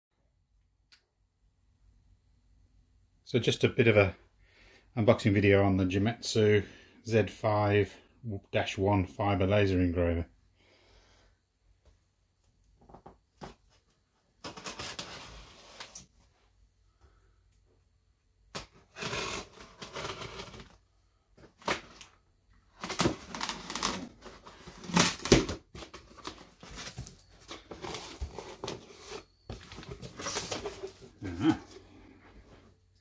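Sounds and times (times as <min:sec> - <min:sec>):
tape tearing: 0:18.5 - 0:20.8, 0:21.6 - 0:31.6
cardboard flaps rustling: 0:22.7 - 0:31.5
knife slitting packing tape: 0:22.8 - 0:25.6.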